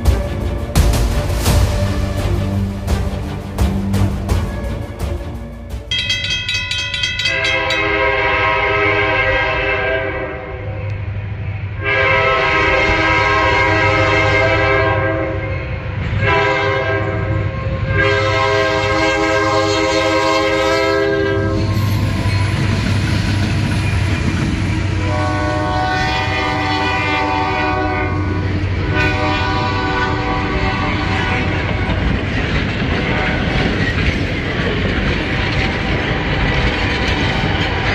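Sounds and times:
locomotive air horn blasts: 0:07.2 - 0:10.9, 0:11.8 - 0:22.4, 0:24.9 - 0:32.0, 0:33.0 - 0:33.6.

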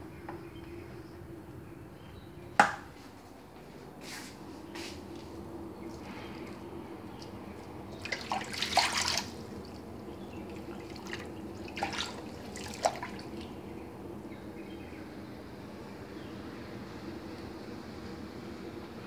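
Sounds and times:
steady low hum: 0:00.0 - 0:19.0
water splashing in a basin: 0:07.9 - 0:13.6.

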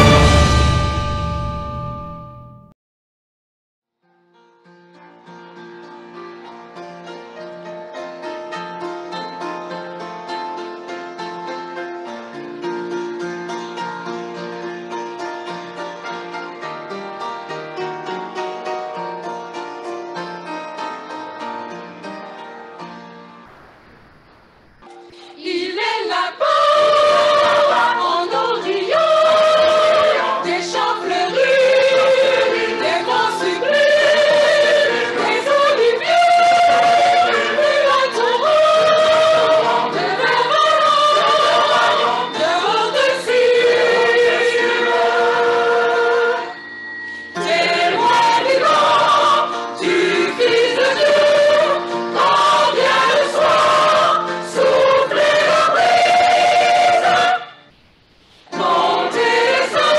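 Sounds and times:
mixed choir singing a hymn: 0:00.0 - 0:00.8, 0:25.2 - 0:46.6, 0:47.3 - 0:57.7, 0:58.5 - 0:59.9.

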